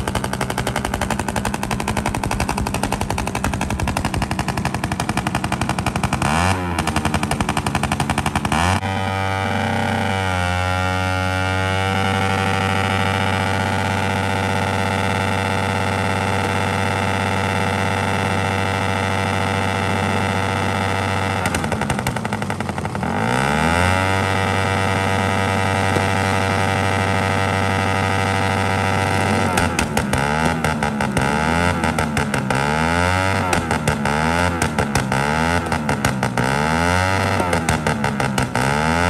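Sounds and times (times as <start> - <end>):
backfire pops: 0.0 - 8.5, 33.3 - 36.4
tyre spinning on road: 0.0 - 8.9
motorcycle engine revving: 0.0 - 39.0.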